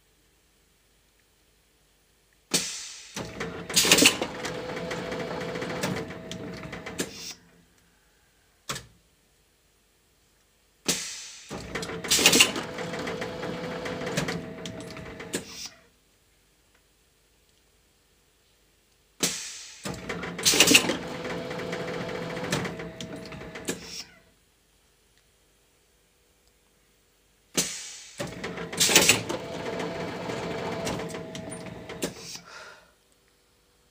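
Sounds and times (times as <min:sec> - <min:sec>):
machine hissing and mechanical noise: 0:02.5 - 0:07.4, 0:10.9 - 0:15.7, 0:19.2 - 0:24.1, 0:27.6 - 0:32.4.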